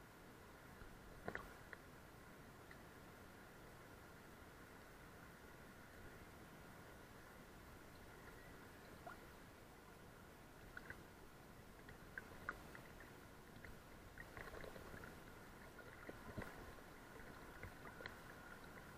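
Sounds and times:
thin steady hiss: 0:00.0 - 0:18.9
river water lapping and gurgling: 0:00.2 - 0:18.9
small ticks and plops: 0:00.8 - 0:01.8, 0:10.6 - 0:11.1, 0:11.7 - 0:18.9.

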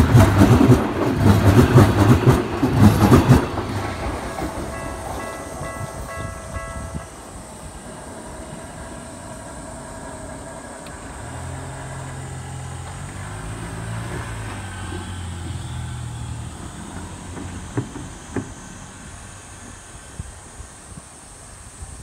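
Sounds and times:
cicadas droning: 0:00.0 - 0:22.0
train running along track: 0:00.0 - 0:22.0.

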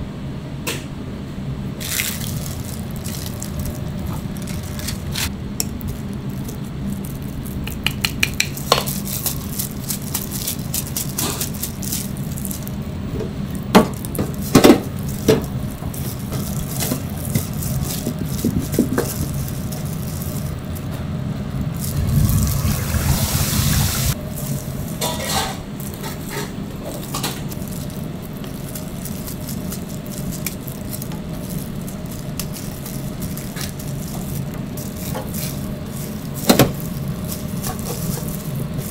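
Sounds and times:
steady low hum: 0:00.0 - 0:38.9
hands working through breadcrumbs: 0:01.8 - 0:20.9, 0:24.2 - 0:38.9
hiss: 0:21.9 - 0:24.2.

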